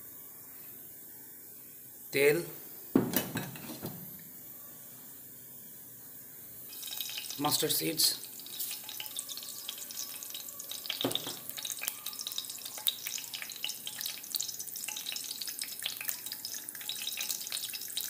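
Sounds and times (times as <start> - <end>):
oil sizzling with crackling pops: 6.7 - 18.0.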